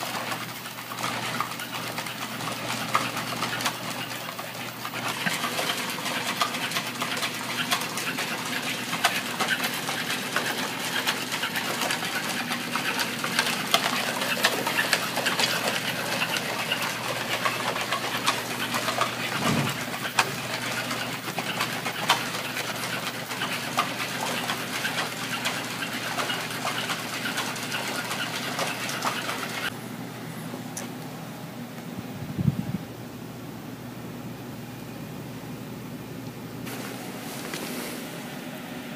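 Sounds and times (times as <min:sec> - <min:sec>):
robot motor whir: 0:18.7 - 0:20.4.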